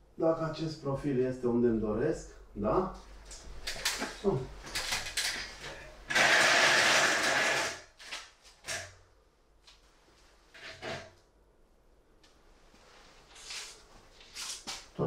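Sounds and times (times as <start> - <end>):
metal profile scraping on metal: 10.6 - 11.1.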